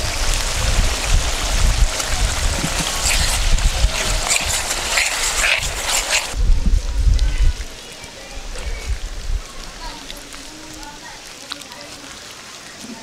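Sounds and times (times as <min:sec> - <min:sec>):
sauce sizzling and bubbling: 0:00.0 - 0:06.4
low rumble: 0:06.3 - 0:07.8.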